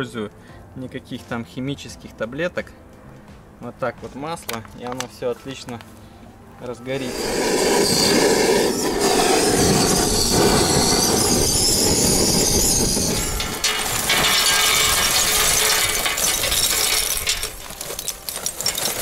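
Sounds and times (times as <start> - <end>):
gas torch hissing: 7.0 - 14.0
charcoal clattering onto wood: 13.4 - 19.0.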